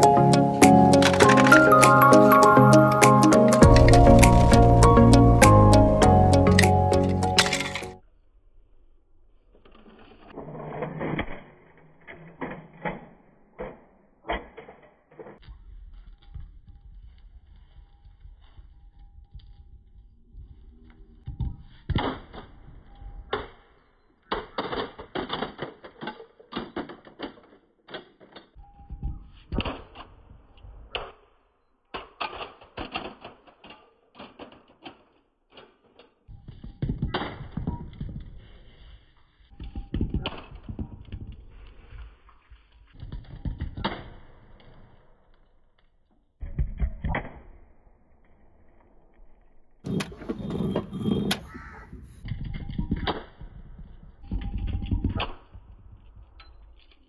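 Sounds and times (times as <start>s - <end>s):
hard objects clattering on concrete: 49.8s - 55.2s.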